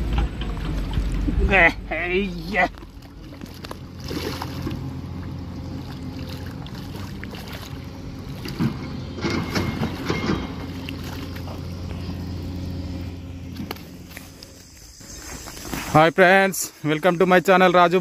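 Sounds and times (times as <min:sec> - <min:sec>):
irregular knocks and rustles: 0:00.0 - 0:01.5, 0:08.3 - 0:12.1
low motor hum: 0:00.0 - 0:15.8.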